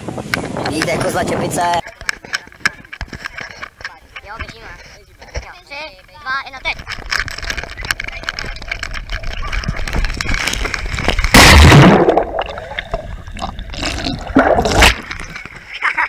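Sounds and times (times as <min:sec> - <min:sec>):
loud splash: 0:11.3 - 0:12.8, 0:13.8 - 0:15.1
muffled underwater gurgling: 0:11.6 - 0:15.4.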